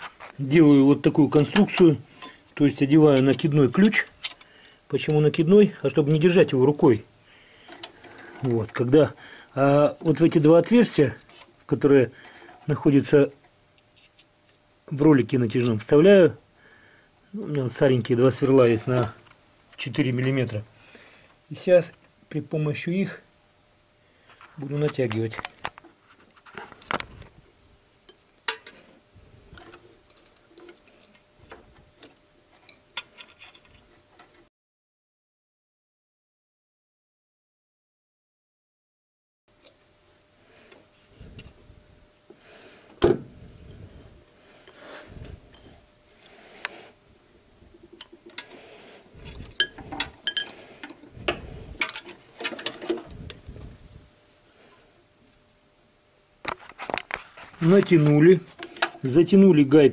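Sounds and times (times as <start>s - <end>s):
steel tools clicking on metal: 3.1s - 5.2s.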